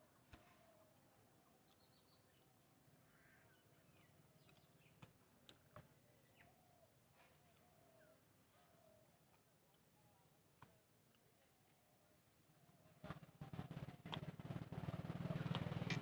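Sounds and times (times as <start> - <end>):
soft clicks: 15.5 - 16.0.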